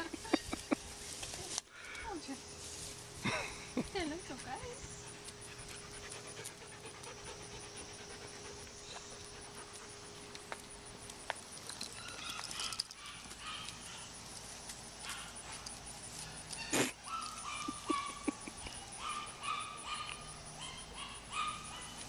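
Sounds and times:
dog panting: 4.0 - 10.4.

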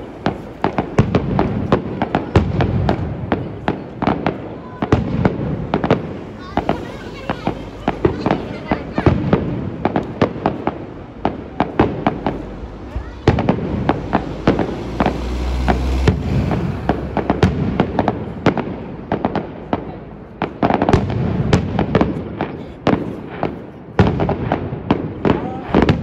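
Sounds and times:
fireworks bangs and crackles: 0.0 - 26.0
low rumble: 10.8 - 19.1.

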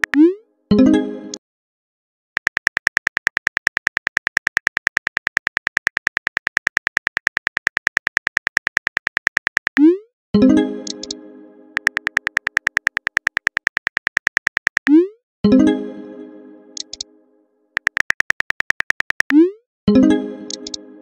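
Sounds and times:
keyboard typing clicks: 0.0 - 0.3, 2.4 - 10.0, 10.8 - 11.2, 11.8 - 15.1, 16.8 - 17.1, 17.8 - 19.4, 20.5 - 20.8.

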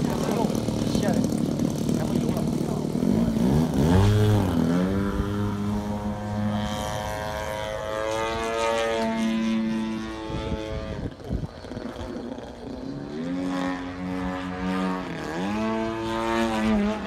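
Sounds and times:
model plane engine droning: 0.0 - 17.0.

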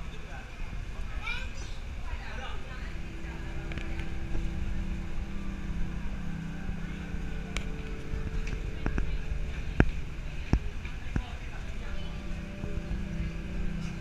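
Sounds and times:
low hum and rumble: 0.0 - 14.0
murmur of voices: 0.0 - 14.0.

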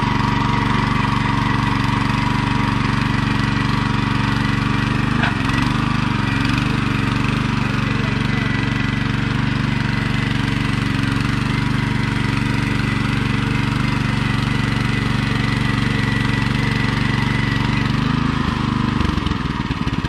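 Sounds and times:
tiller engine running: 0.0 - 20.0
tines churning soil: 0.0 - 20.0.

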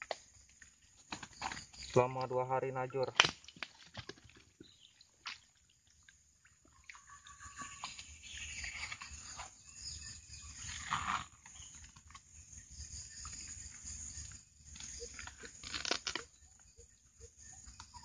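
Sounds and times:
rustling and sloshing water: 0.0 - 2.2, 2.9 - 18.0
water dripping: 3.0 - 8.4.

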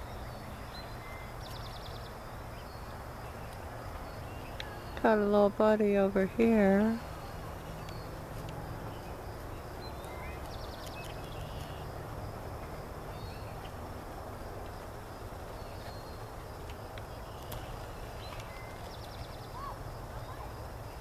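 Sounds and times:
bird chirps: 9.8 - 11.9.

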